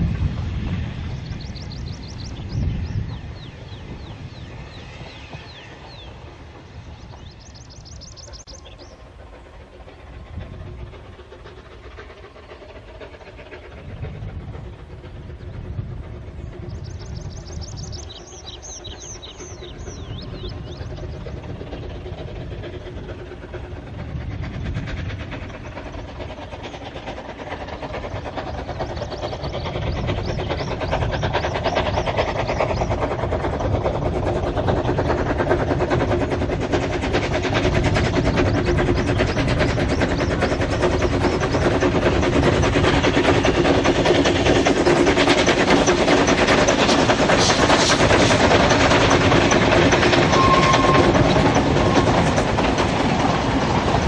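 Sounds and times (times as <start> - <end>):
rail noise: 0.0 - 54.0
steam locomotive chuffing: 0.0 - 54.0
bird singing: 1.2 - 9.1, 16.4 - 21.3.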